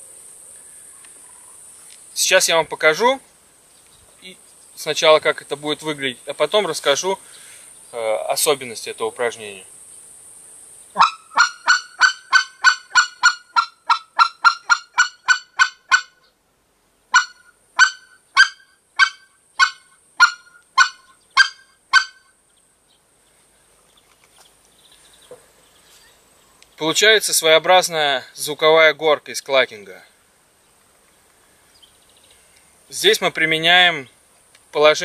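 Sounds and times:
goose call clucks: 11.0 - 16.3, 17.1 - 22.3.

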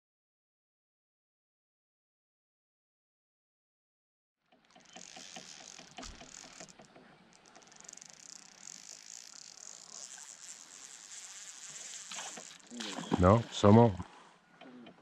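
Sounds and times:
fishing reel drag clicking: 4.6 - 13.2.

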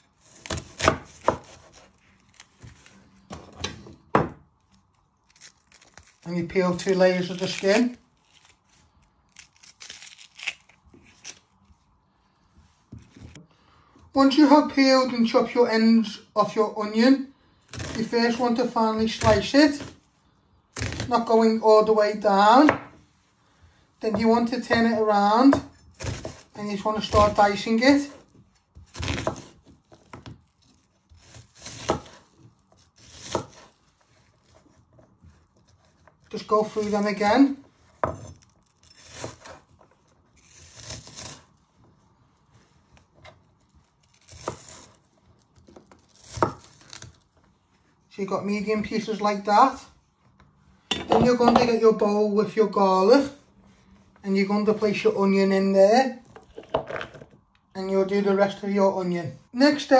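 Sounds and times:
onion skin peeling crackles: 0.0 - 3.4, 4.5 - 11.9, 25.9 - 41.7, 42.4 - 47.5
knife cutting onion on wooden board: 0.0 - 4.4, 24.0 - 28.2, 28.8 - 33.8, 37.9 - 39.8, 40.4 - 41.5, 44.1 - 45.0, 45.7 - 47.1.

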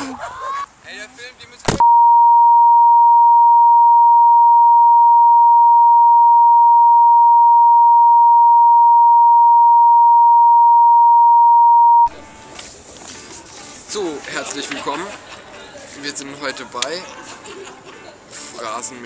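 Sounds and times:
steady test tone beep: 1.8 - 12.1.

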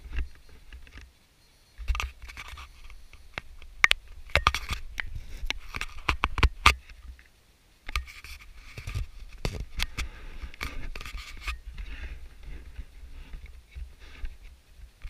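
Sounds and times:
camera handling clicks and scraping: 1.8 - 7.0, 7.9 - 11.6.

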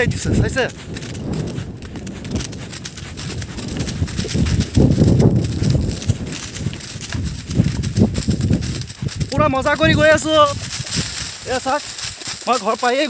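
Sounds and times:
hoofbeats on dry stubble: 0.0 - 13.0.

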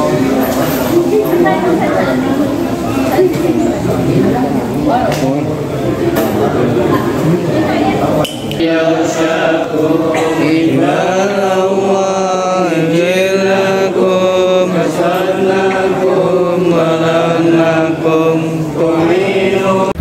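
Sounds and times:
group chanting in unison: 6.2 - 20.0.

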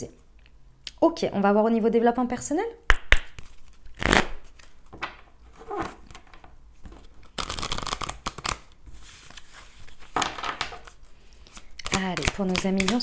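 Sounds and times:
cards being shuffled: 3.2 - 13.0.

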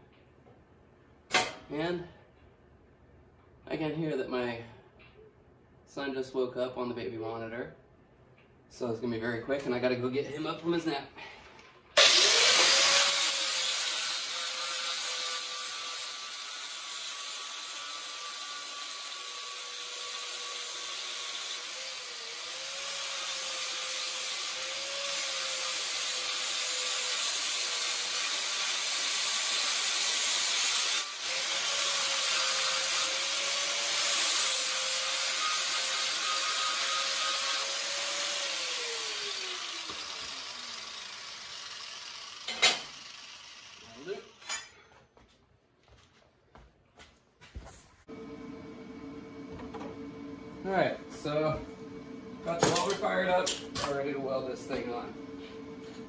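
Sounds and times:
angle grinder grinding metal: 12.0 - 44.8.

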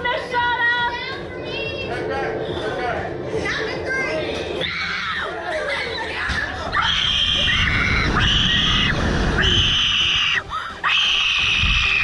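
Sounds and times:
low rumble: 6.7 - 10.1.

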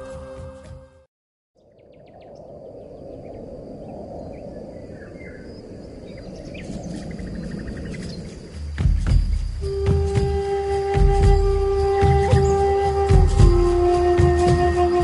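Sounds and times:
high insect tone: 5.3 - 14.1.

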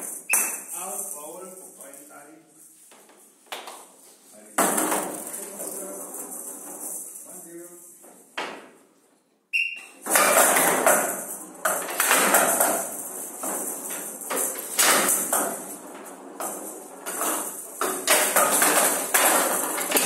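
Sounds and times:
metal beads rattling: 5.1 - 8.0
short whistle: 9.5 - 10.0.

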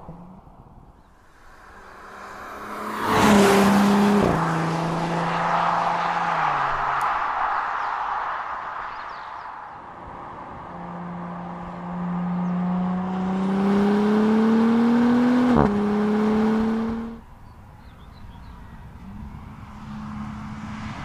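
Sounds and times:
car engine accelerating hard: 1.6 - 7.2, 10.0 - 17.2.

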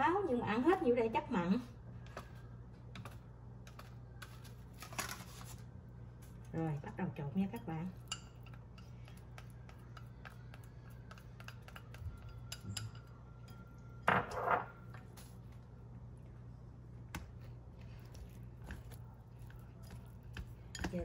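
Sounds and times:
chopsticks tapping in ceramic bowl: 7.5 - 13.7, 18.6 - 21.0
chopsticks clattering: 7.6 - 14.4, 18.6 - 21.0.

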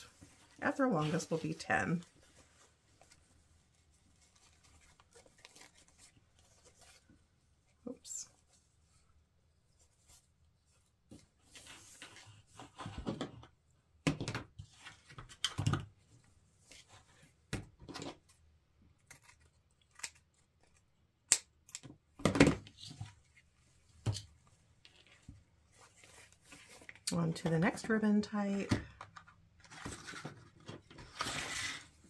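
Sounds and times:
fabric ribbon rustling and crinkling: 0.0 - 12.2, 23.2 - 27.1.

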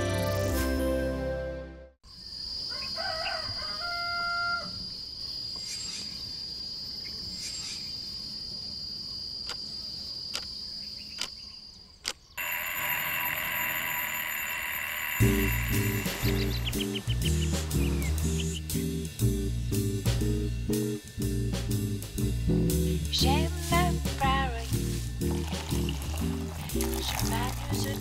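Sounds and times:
music: 0.0 - 2.0, 15.2 - 28.0
alarm clock bells ringing: 12.4 - 17.0
high-pitched insect drone: 12.4 - 19.4
bird-like chirps: 15.0 - 19.0.

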